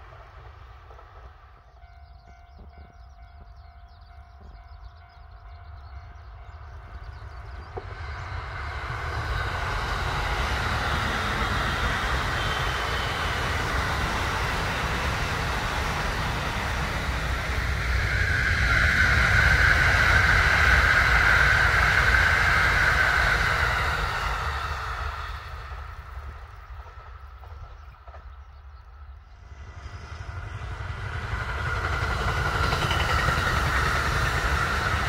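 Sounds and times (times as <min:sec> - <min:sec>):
electric train passing at speed: 0:00.0 - 0:35.0.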